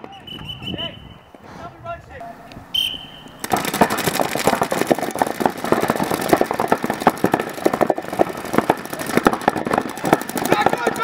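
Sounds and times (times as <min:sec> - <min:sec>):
paintball markers firing: 0:02.9 - 0:11.0.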